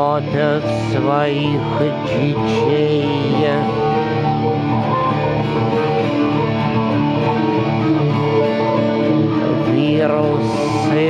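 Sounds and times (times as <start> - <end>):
acoustic guitar strumming: 0.0 - 11.0
electric guitar: 0.0 - 11.0.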